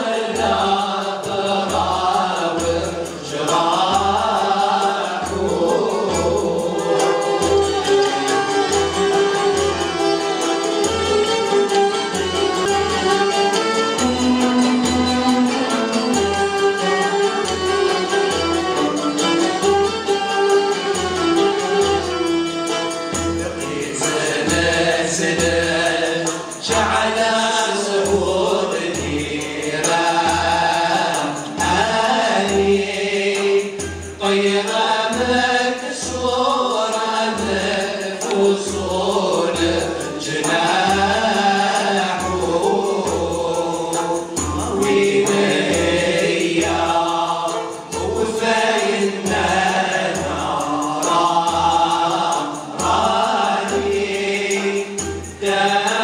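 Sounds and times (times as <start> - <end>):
group singing in unison: 0.0 - 56.0
oud: 0.0 - 56.0
violas: 4.0 - 27.4.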